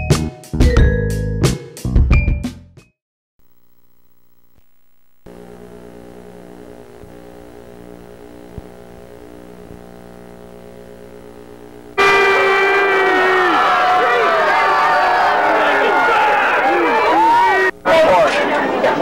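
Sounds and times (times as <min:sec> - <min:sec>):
steady electrical hum: 0:03.4 - 0:12.0
crowd shouting and cheering: 0:12.0 - 0:19.0.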